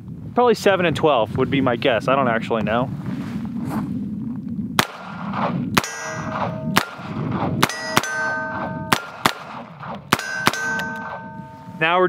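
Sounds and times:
steel target ringing clang: 5.8s - 12.0s.

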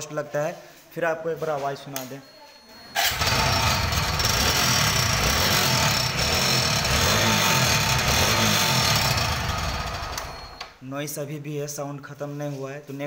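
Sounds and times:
motorcycle engine running: 3.0s - 10.5s.

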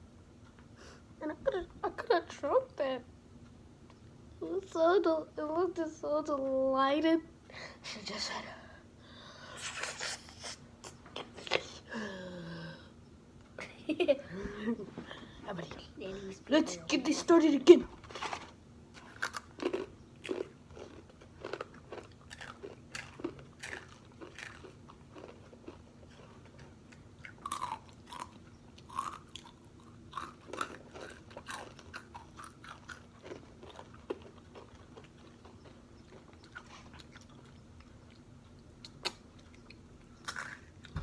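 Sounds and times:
chips crunched and chewed: 18.1s - 37.9s, 40.2s - 40.9s.

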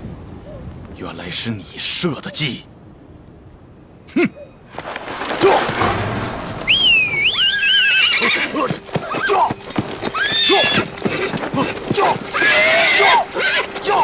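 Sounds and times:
hooves clattering: 4.7s - 14.0s
horse whinnying: 6.7s - 14.0s.

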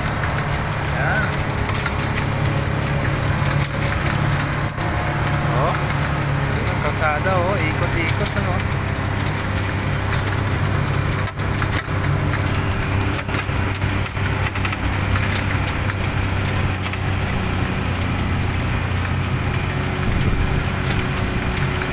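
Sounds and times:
light clicks and knocks: 0.0s - 21.9s
vehicle engine running: 0.0s - 21.9s.

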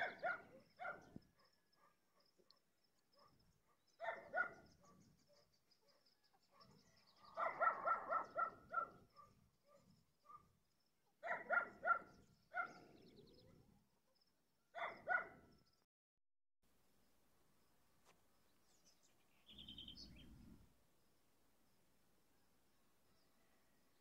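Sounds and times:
dog barking: 0.0s - 10.5s, 11.2s - 13.0s, 14.7s - 15.5s.

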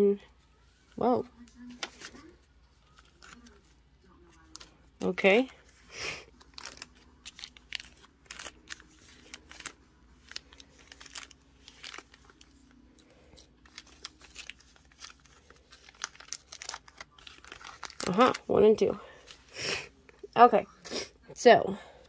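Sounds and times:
plastic bags crinkling: 4.4s - 19.6s.

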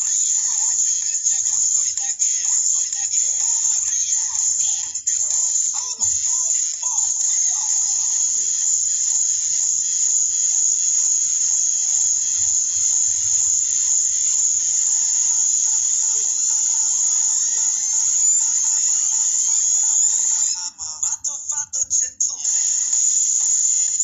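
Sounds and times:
high-pitched buzzing hiss: 0.0s - 24.0s.

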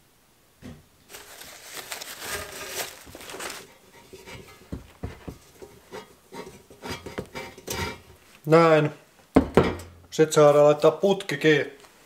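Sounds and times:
paper towel rubbing on metal pipe: 1.1s - 8.0s.

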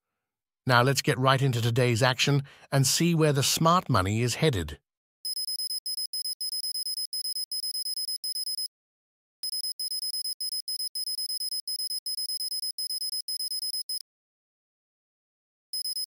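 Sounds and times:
pulsing electronic ringing: 5.3s - 8.7s, 9.4s - 14.0s, 15.8s - 16.0s.

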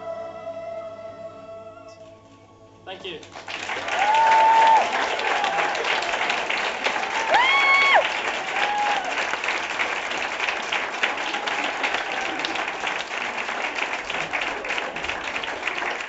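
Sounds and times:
audience clapping: 3.2s - 16.0s
short high whoop: 3.9s - 6.0s, 7.1s - 9.2s.

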